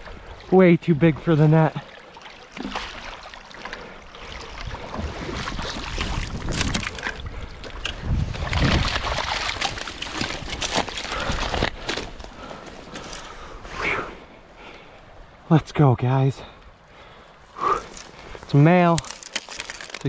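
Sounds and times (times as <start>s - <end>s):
fish splashing in shallow water: 1.8s - 13.4s
wind rumble on microphone: 4.5s - 11.7s.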